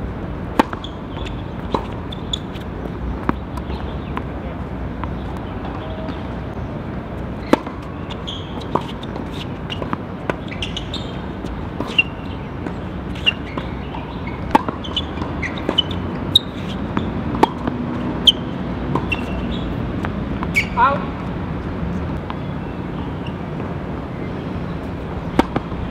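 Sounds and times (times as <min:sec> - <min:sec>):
tennis ball struck and bouncing: 0:00.5 - 0:04.4, 0:07.2 - 0:20.8, 0:25.2 - 0:25.9
shoe squeaks: 0:00.6 - 0:04.0, 0:07.4 - 0:19.8, 0:20.4 - 0:20.9, 0:22.4 - 0:23.5.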